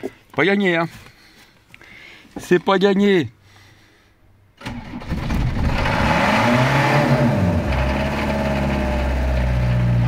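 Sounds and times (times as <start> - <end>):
van engine revving and idling: 5.1 - 10.0.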